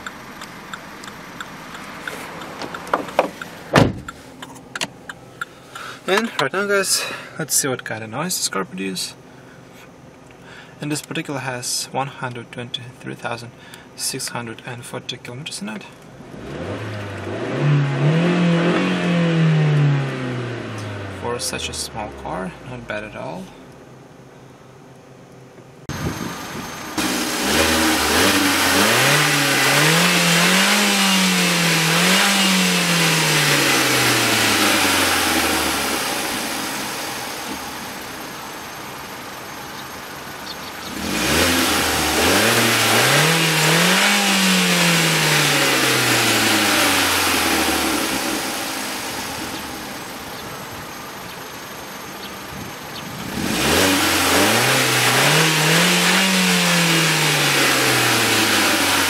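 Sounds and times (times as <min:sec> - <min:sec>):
car engine revving: 0:16.1 - 0:23.1, 0:25.8 - 0:52.1, 0:52.8 - 0:59.0.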